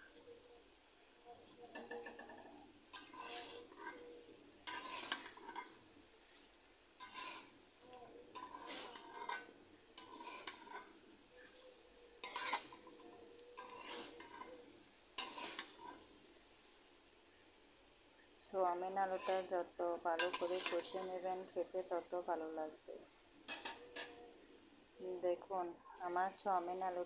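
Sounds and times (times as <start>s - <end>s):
food sizzling: 1.1s - 27.0s
metal spatula scraping a pan: 1.7s - 16.8s, 18.7s - 22.1s, 23.4s - 24.4s.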